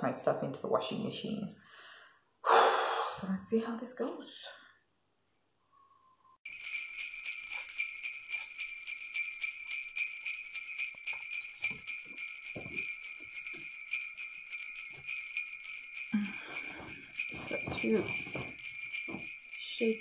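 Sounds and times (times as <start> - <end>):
sleigh bells jingling: 6.4 - 20.0
festive background music: 6.5 - 20.0
faint low thuds: 16.6 - 19.4.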